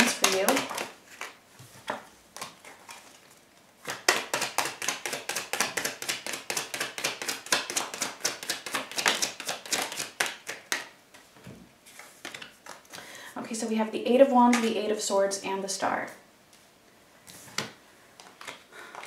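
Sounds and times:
cards being shuffled: 0.0 - 11.3, 11.9 - 13.0, 17.3 - 19.0.

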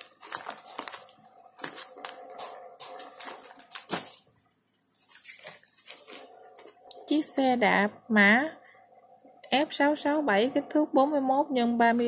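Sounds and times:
plastic bags crinkling: 0.0 - 4.3.

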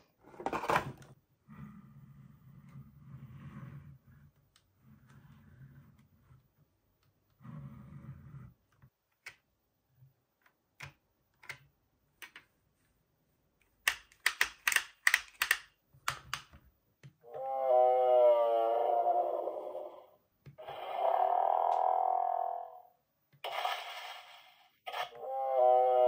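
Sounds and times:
electronic dinosaur toy roar: 17.2 - 24.0, 24.9 - 26.0.

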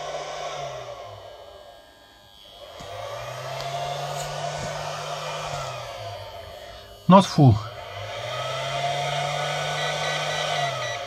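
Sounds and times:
charge controller electrical hum: 0.0 - 11.0.

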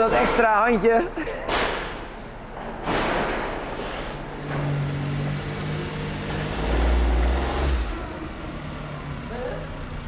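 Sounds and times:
vehicle engine running: 4.3 - 10.0.

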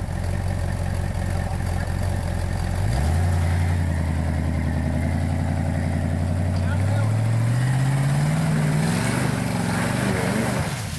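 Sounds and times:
engine revving under load: 2.6 - 10.9.

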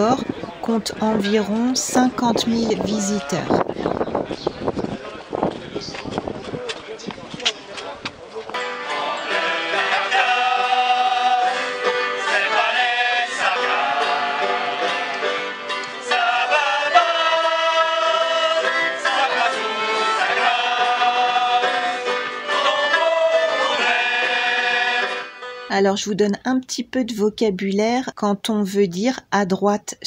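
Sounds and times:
choir singing: 8.6 - 25.6.

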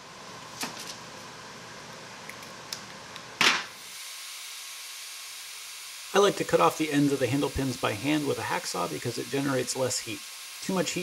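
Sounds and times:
steady hiss: 3.7 - 11.0.

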